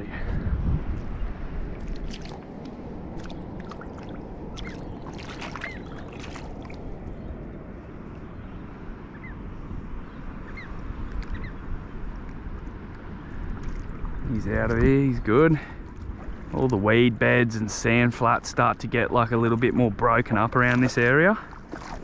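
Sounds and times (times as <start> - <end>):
shallow water sloshing and splashing: 1.6 - 7.0, 15.7 - 16.8, 19.6 - 22.0.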